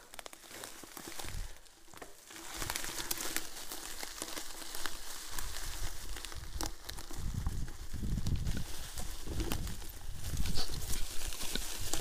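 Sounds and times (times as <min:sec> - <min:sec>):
tyres crackling through leaves: 0:00.0 - 0:12.0
low rumble of wind: 0:05.6 - 0:12.0.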